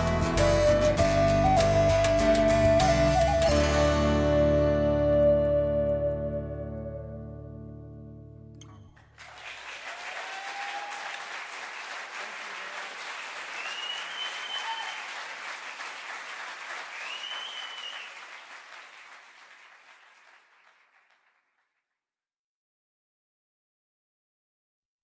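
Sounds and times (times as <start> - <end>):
audience clapping: 9.0 - 21.8
high gliding whistles: 13.5 - 15.1, 16.9 - 18.2.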